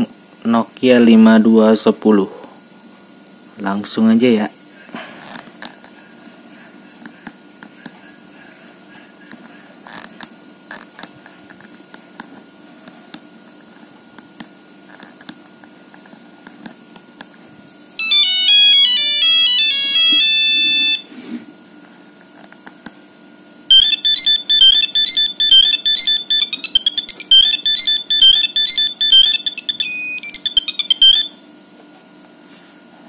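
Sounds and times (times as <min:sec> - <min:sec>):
beeping monophonic ringtone: 0:18.0 - 0:21.1, 0:23.7 - 0:31.4.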